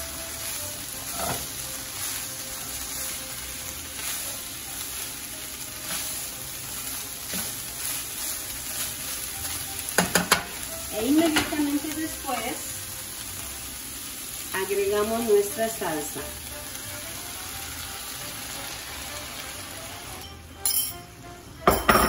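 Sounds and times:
meat and beans sizzling: 0.0 - 22.0
spatula scraping a pan: 1.0 - 2.2, 5.8 - 10.6.

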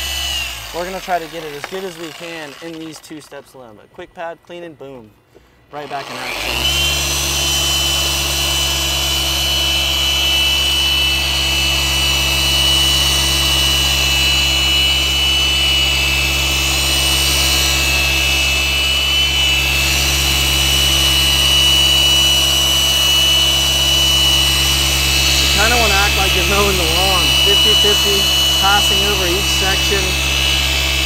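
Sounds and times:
polisher motor drone: 0.0 - 2.8, 5.8 - 31.0
high whine: 13.6 - 31.0.

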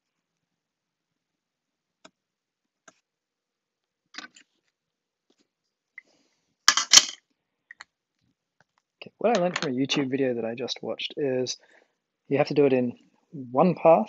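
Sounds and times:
handling clicks and taps: 8.6 - 9.7.

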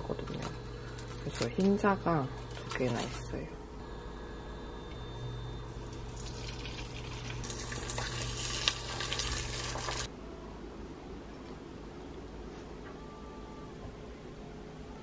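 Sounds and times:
egg whites sizzling in pan: 5.9 - 10.1.

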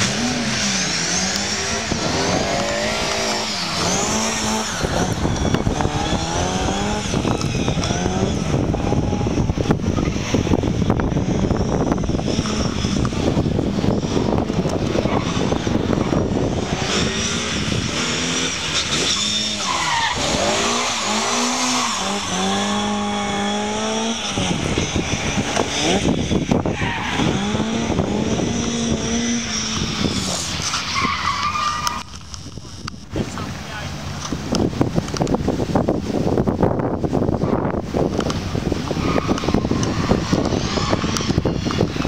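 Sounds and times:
rally car engine revving: 0.0 - 42.0
tyres squealing: 18.6 - 23.0.

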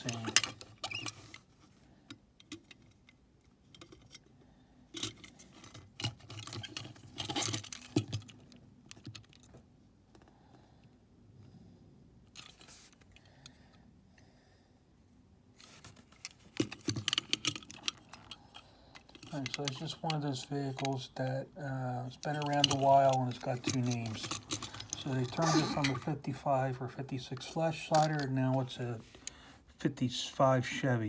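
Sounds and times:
metal toy trucks clinking: 0.0 - 1.4, 4.9 - 8.4, 16.1 - 21.1, 22.1 - 26.4, 27.2 - 28.8.

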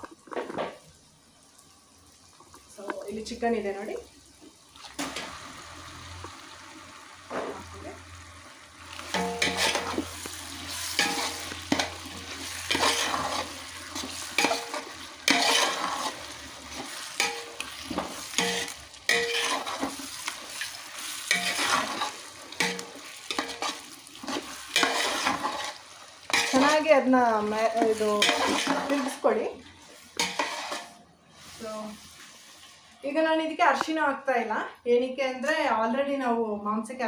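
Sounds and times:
frying sizzle: 0.0 - 36.4
spoon scraping pot: 9.1 - 26.8, 27.6 - 29.2, 30.1 - 31.0.

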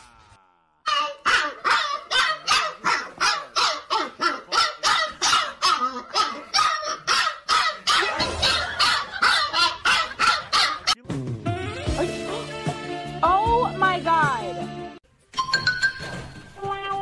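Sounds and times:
puppy yapping: 0.9 - 11.0.

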